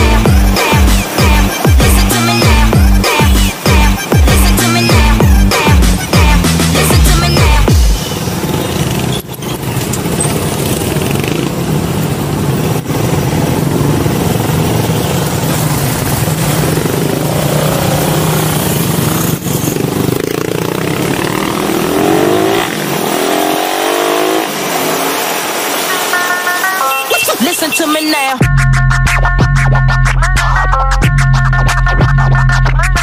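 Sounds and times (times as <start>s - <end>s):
motorcycle engine running: 0.0s - 25.0s
passing traffic: 0.0s - 33.0s
road and wind noise: 0.0s - 33.0s.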